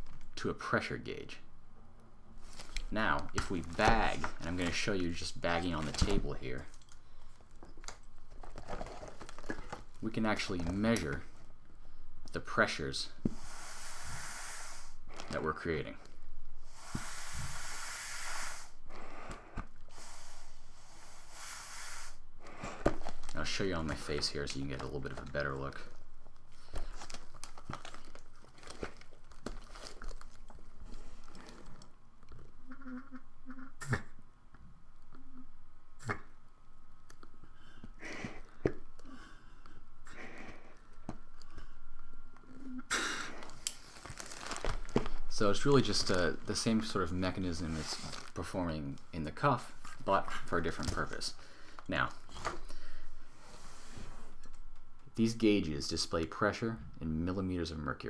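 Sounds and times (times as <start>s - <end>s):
air rushing through valve mask: 13.3s - 15.0s, 16.6s - 22.8s
hissing whoosh of air: 13.4s - 15.0s, 16.7s - 18.7s.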